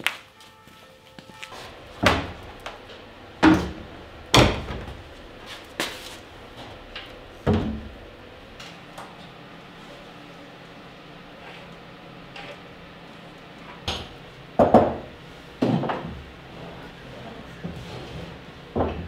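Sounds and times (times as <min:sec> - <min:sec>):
heavy wooden knocks and bangs: 0:01.6 - 0:08.9.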